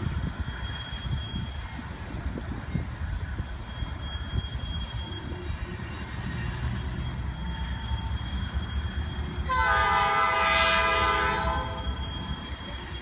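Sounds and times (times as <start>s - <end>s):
freight train rumbling past: 0.0s - 13.0s
locomotive air horn blast: 9.5s - 11.8s.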